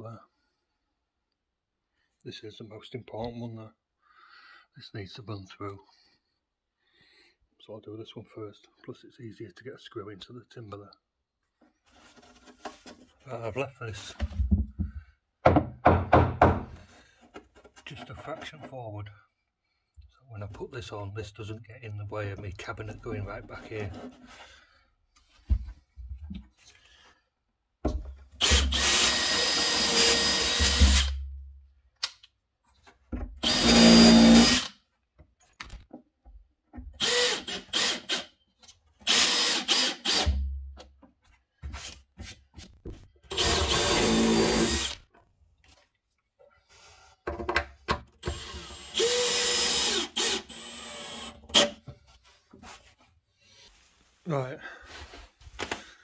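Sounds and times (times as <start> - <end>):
drill driving screws into wood: 28.4 - 31.2, 33.4 - 34.8, 37.0 - 38.3, 39.0 - 40.4, 43.3 - 45.0, 48.2 - 51.8.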